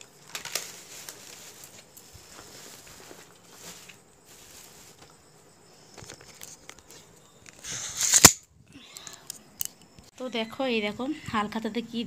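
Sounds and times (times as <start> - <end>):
package rustling: 0.2 - 5.1
phone rubbing and scraping: 7.6 - 8.2.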